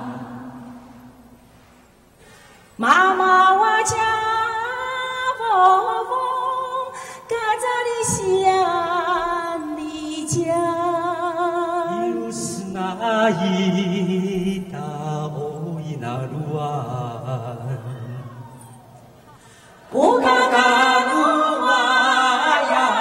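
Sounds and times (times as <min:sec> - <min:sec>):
lower voice singing: 0:00.0 - 0:01.2, 0:02.8 - 0:19.1, 0:19.8 - 0:23.0
woman singing: 0:02.8 - 0:13.0, 0:19.9 - 0:23.0.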